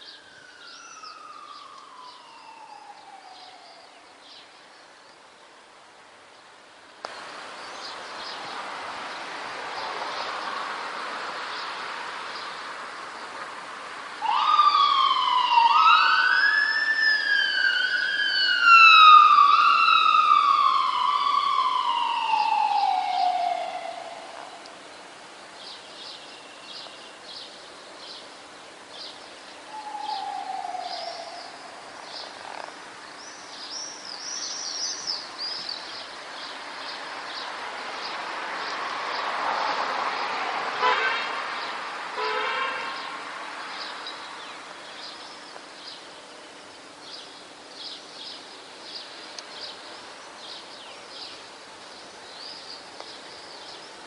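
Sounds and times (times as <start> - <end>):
emergency vehicle siren wailing: 0.0 - 4.0, 14.2 - 24.8, 29.7 - 31.9
swallows chirping: 28.9 - 38.8.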